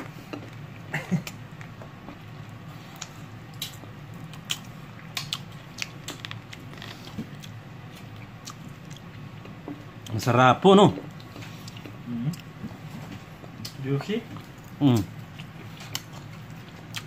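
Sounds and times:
people chewing: 0.0 - 10.3, 10.9 - 17.0
steady low hum: 0.0 - 17.0
lip-smacking: 3.0 - 6.7.

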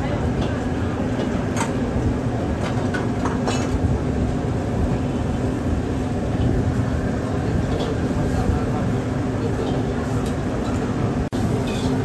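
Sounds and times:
gas burner rushing: 0.0 - 12.0
metal ladle clanking on wok: 11.5 - 12.0.

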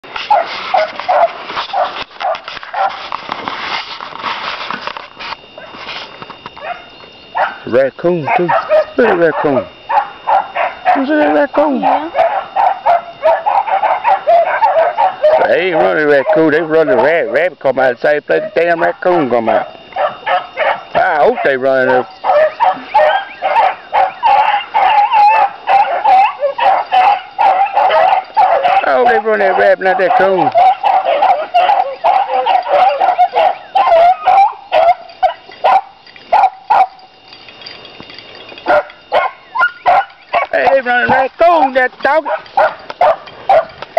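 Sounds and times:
dogs barking: 0.0 - 3.2, 5.4 - 43.9.

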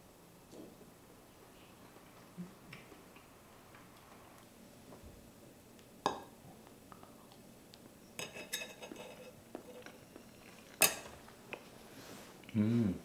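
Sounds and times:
fork clinking on a plate: 8.2 - 10.0.

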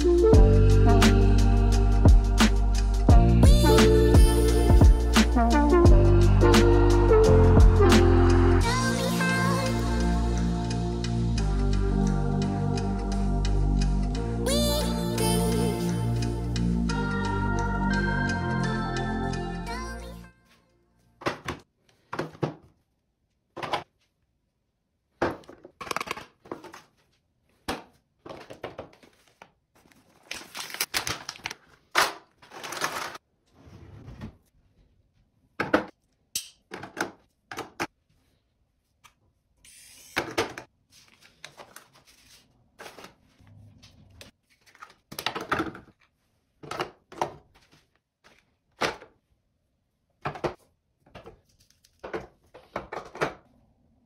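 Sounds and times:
packaging rustling: 28.3 - 33.2, 44.4 - 46.1.

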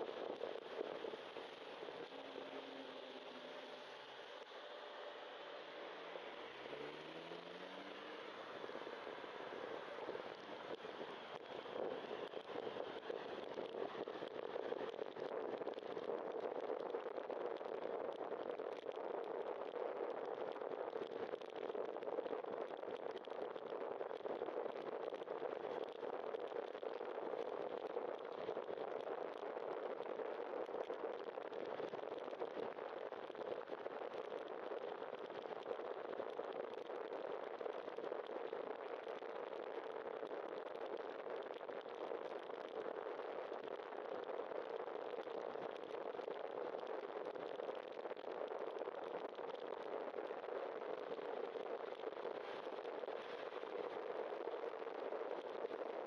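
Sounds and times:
rush of riding: 5.0 - 12.9.

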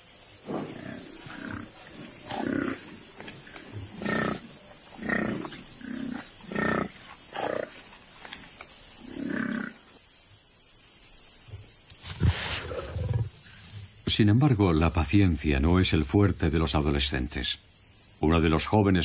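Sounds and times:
large animals grunting: 0.4 - 7.8, 9.0 - 9.9.

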